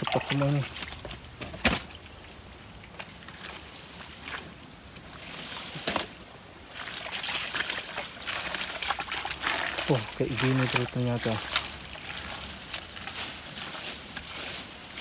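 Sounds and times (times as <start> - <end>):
ditch water splashing and sloshing: 0.0 - 15.0.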